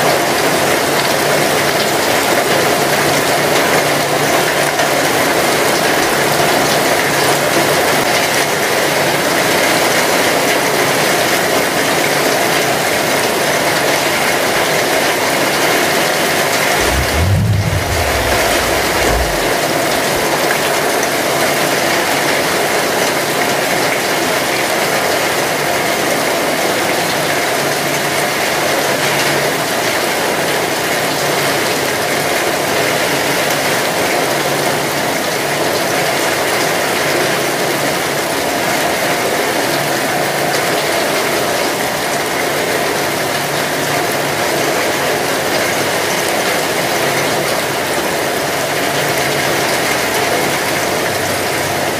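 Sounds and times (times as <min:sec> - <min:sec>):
heavy rain falling: 0:16.8 - 0:19.5.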